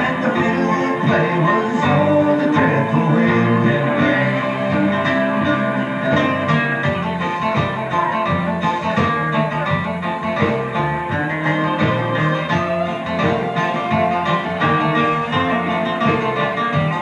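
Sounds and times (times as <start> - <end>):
acoustic guitar: 0.0 - 17.0
live band playing folk music: 0.0 - 17.0.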